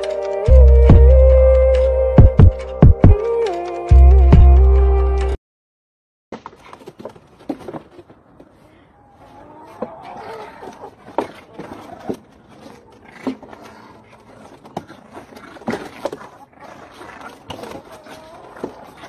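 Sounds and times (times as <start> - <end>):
puppies scuffling and scraping: 6.4 - 8.7, 9.6 - 19.0.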